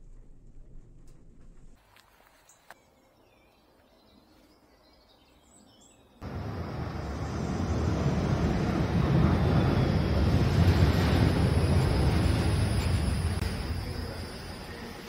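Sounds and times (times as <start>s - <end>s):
faint birdsong chirping: 2.3s - 10.4s
tram rumbling into a station: 6.2s - 15.0s.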